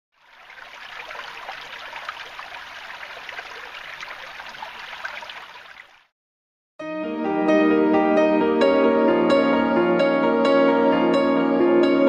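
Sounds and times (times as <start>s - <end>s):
creek babbling over rocks: 0.2s - 6.1s.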